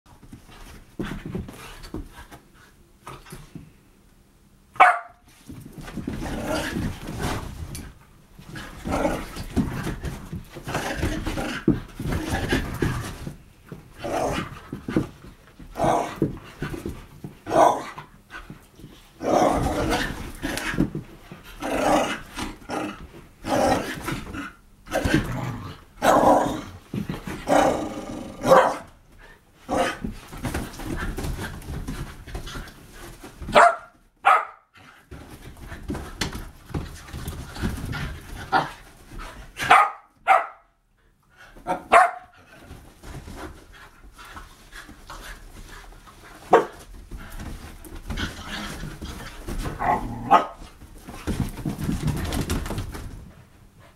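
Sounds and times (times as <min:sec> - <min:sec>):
dog yipping: 0:04.8 - 0:05.2
dogs growling and barking: 0:06.0 - 0:07.6, 0:08.5 - 0:13.3, 0:14.0 - 0:15.0, 0:15.7 - 0:16.7, 0:17.4 - 0:18.1, 0:19.2 - 0:21.0, 0:21.6 - 0:28.9, 0:29.7 - 0:30.6, 0:48.1 - 0:52.6.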